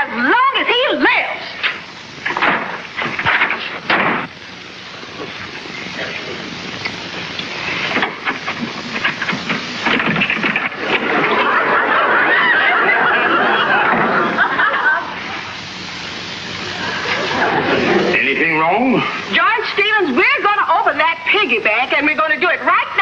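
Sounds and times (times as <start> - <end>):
laugh track: 11.0 - 15.4, 16.6 - 18.4.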